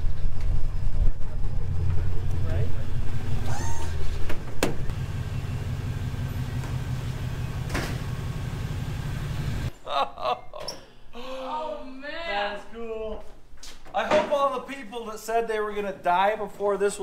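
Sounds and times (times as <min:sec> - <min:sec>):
truck engine idling: 0:00.0 - 0:09.7.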